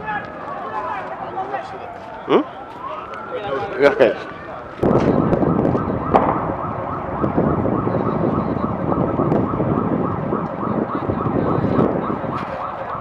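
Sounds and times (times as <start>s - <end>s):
siren yelping: 1.5s - 13.0s
loud low rumble: 4.8s - 12.3s.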